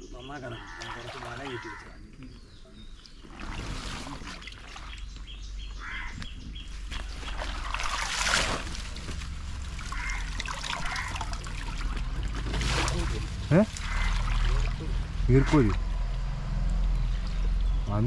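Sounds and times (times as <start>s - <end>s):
water splashing and trickling: 0.2s - 18.0s
fish trap dragged through water: 3.2s - 5.0s, 6.9s - 15.2s.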